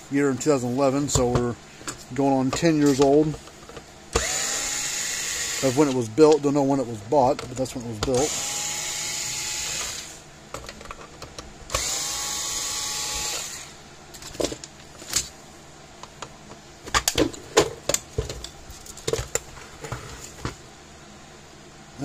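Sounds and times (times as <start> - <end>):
electric screwdriver whirring: 4.2 - 5.9, 8.2 - 10.2, 11.7 - 13.7.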